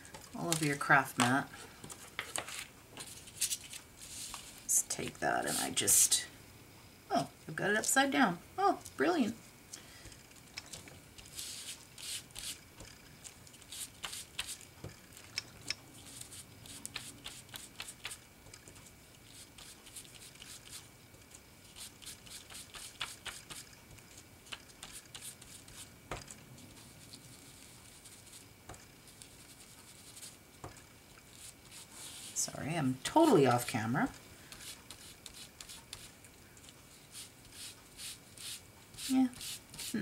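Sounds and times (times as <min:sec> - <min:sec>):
ink pad dabbing and rubbing paper: 0:00.5 - 0:06.1, 0:11.2 - 0:12.6, 0:13.6 - 0:14.7, 0:16.0 - 0:18.2, 0:19.2 - 0:20.9, 0:21.6 - 0:23.7, 0:24.5 - 0:25.9, 0:26.7 - 0:33.9, 0:34.5 - 0:36.2, 0:37.0 - 0:40.0.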